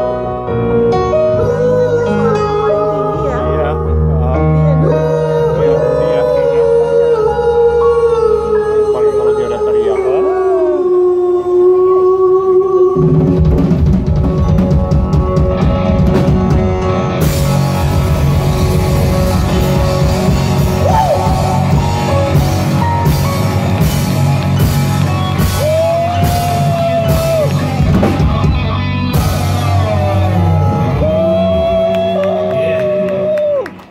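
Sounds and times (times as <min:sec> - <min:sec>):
live rock band playing: 0:00.0 - 0:09.0, 0:13.0 - 0:33.8
person singing: 0:00.8 - 0:13.6, 0:17.9 - 0:23.9.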